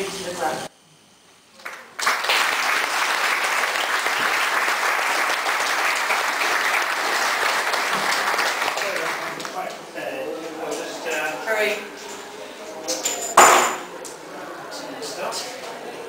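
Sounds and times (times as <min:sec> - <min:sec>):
audience applauding: 0:01.6 - 0:09.6.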